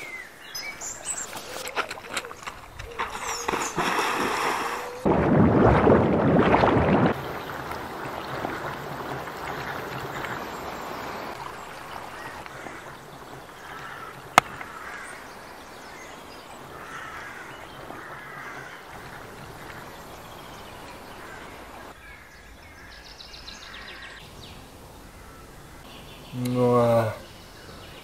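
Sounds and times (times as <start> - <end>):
river water rushing: 0.9 - 22.0.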